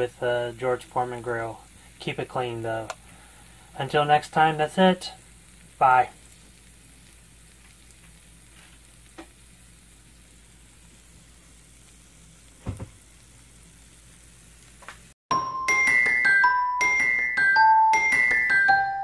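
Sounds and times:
food sizzling on grill: 0.0s - 15.2s
bell-like music notes: 15.3s - 19.0s.

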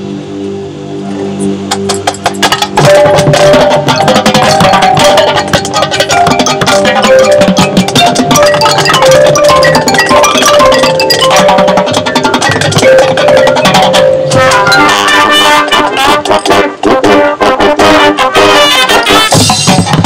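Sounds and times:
drums and percussion: 1.7s - 20.0s
brass holding long chords: 14.3s - 19.5s.

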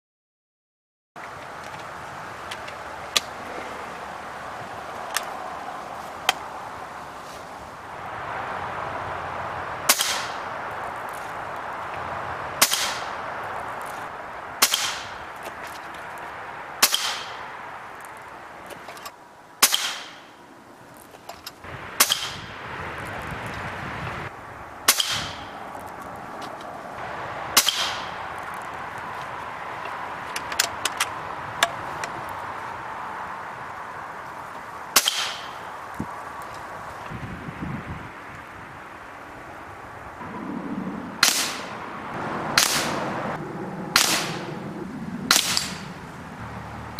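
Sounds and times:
air rifle shots cracking: 9.8s - 10.5s, 12.6s - 13.2s, 14.6s - 15.3s, 16.8s - 17.4s, 19.6s - 20.3s, 22.0s - 22.5s, 24.8s - 25.6s, 27.5s - 28.2s, 34.9s - 35.6s, 41.2s - 41.7s, 42.5s - 43.0s, 43.9s - 44.6s, 45.3s - 46.0s.

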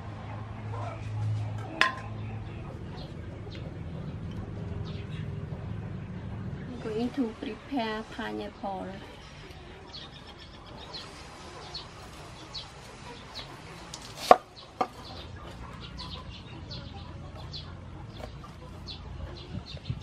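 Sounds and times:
birds chirping: 0.0s - 20.0s
cleaver chopping on wooden board: 14.0s - 15.0s.

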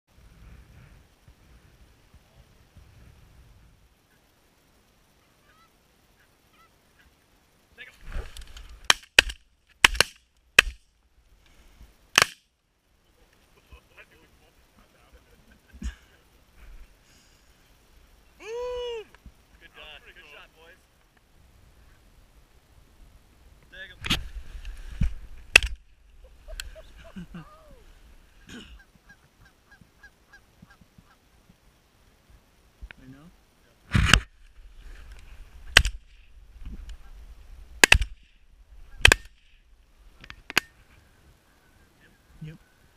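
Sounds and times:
geese honking: 5.2s - 7.2s
shotgun shots: 8.9s - 10.8s, 12.2s - 12.4s, 25.5s - 25.8s, 35.7s - 36.2s, 37.8s - 38.3s, 39.0s - 39.6s
shotgun blast: 37.8s - 38.3s, 39.0s - 39.5s.

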